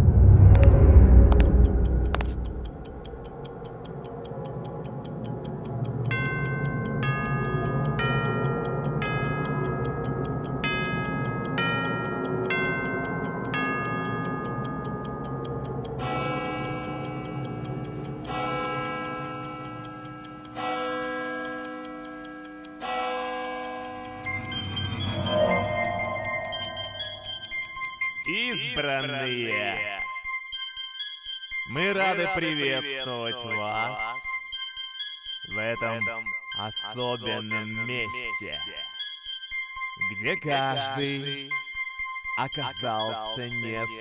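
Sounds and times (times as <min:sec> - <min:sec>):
sustained chords: 0:00.0 - 0:28.5
clock-like ticking: 0:00.0 - 0:44.0
bell-like melody: 0:06.0 - 0:44.0.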